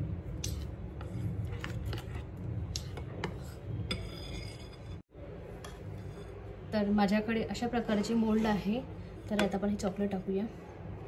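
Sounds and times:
spoon scraping glass bowl: 0:02.9 - 0:05.0.

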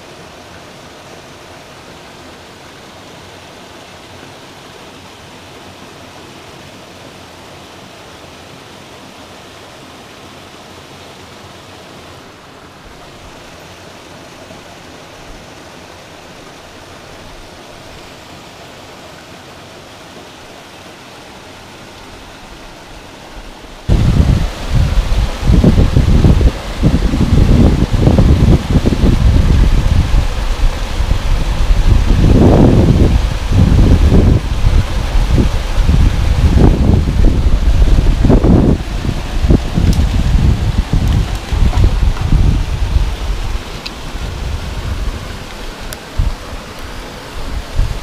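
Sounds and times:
waterfall pouring into pool: 0:23.8 - 0:48.0.

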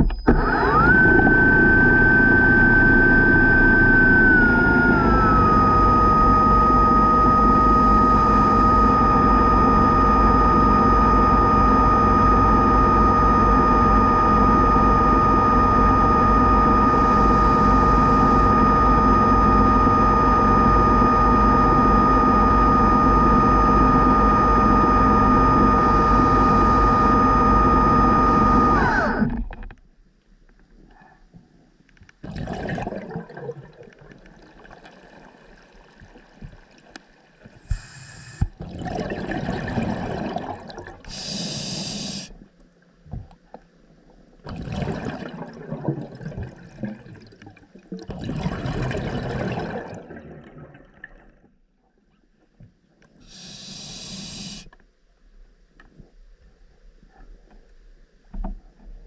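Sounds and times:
underwater scooter motor whine: 0:00.0 - 0:29.9, 0:32.2 - 0:54.8
exhaust bubbles hissing: 0:00.4 - 0:29.4, 0:32.2 - 0:36.1, 0:37.6 - 0:42.4, 0:44.4 - 0:51.3, 0:53.2 - 0:54.7.

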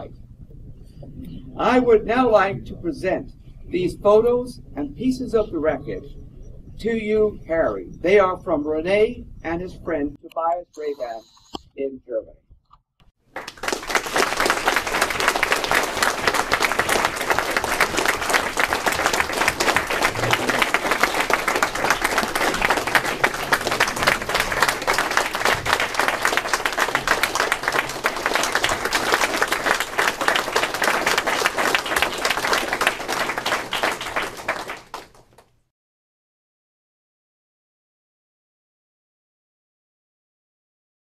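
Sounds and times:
people applauding: 0:13.3 - 0:35.5.

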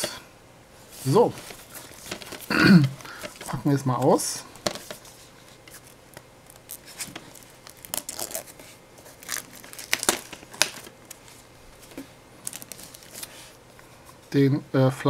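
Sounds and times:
wrapping being torn and crumpled: 0:05.1 - 0:13.5.

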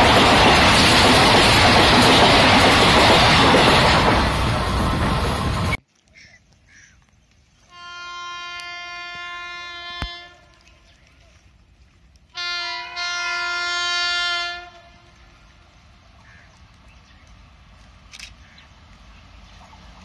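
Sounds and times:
locomotive horn blasts: 0:07.7 - 0:10.7, 0:12.3 - 0:15.3.

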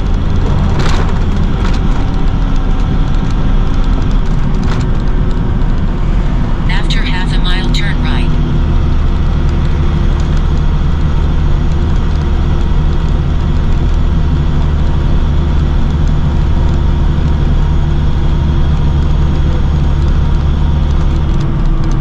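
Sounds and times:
road noise: 0:00.0 - 0:12.6
truck engine droning: 0:00.0 - 0:13.0.

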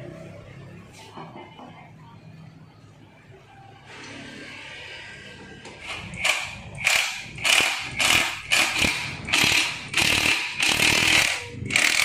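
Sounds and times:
ratchet wrench clicking: 0:05.9 - 0:12.0.

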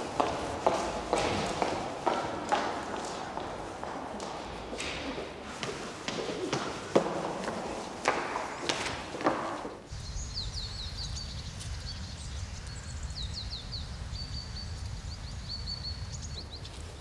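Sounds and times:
footsteps on stairs: 0:00.0 - 0:09.9
small birds chirping: 0:09.9 - 0:17.0.

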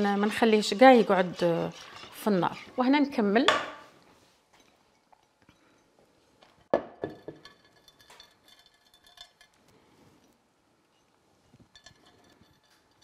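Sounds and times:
glassware clinking on countertop: 0:06.7 - 0:09.6.

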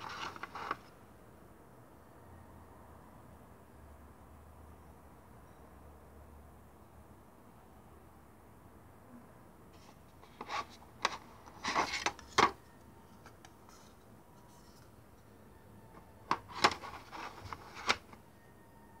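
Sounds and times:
drive casing clicking and scraping: 0:00.0 - 0:00.8, 0:10.2 - 0:12.6, 0:16.2 - 0:18.2.

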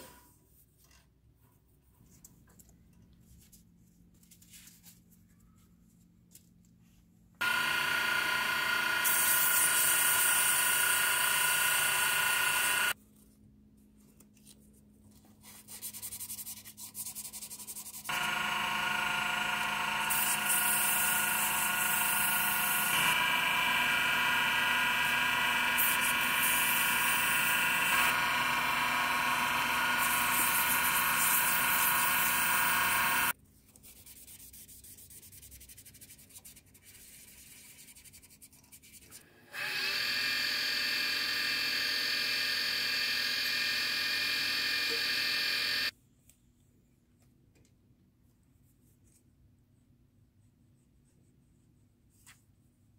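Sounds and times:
wood lathe motor whine: 0:07.4 - 0:13.0, 0:18.1 - 0:33.3, 0:39.5 - 0:45.9.

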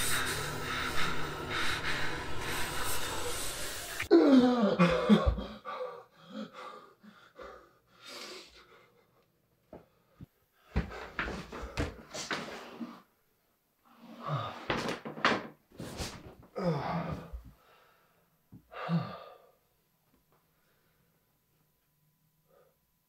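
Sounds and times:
dense noisy wash: 0:00.0 - 0:04.1
man breathing heavily: 0:00.0 - 0:13.0, 0:16.5 - 0:19.6
man groaning: 0:04.1 - 0:05.6, 0:16.6 - 0:17.4.

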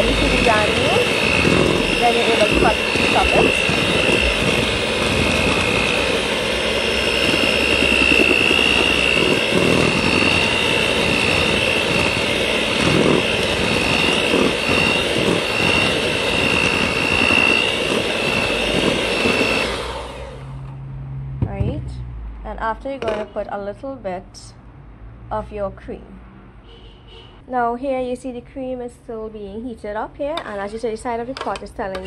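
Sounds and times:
electric mixer whining: 0:00.0 - 0:20.8.

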